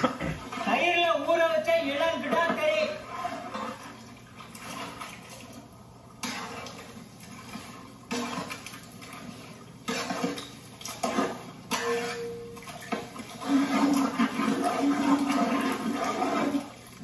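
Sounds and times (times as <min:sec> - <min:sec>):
pot sizzling and bubbling: 0:02.6 - 0:17.0.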